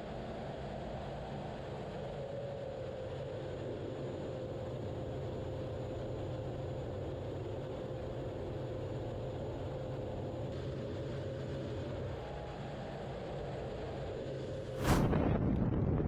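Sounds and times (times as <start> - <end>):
constant whine: 0.0 - 16.0
jet engine and airflow rush: 14.4 - 16.0
low rumble: 14.8 - 16.0.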